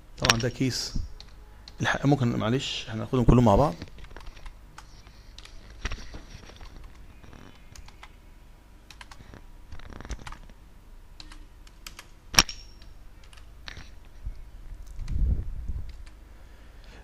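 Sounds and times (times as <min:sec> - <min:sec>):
keyboard keystrokes: 0:04.0 - 0:08.2, 0:08.9 - 0:10.6, 0:15.8 - 0:16.2.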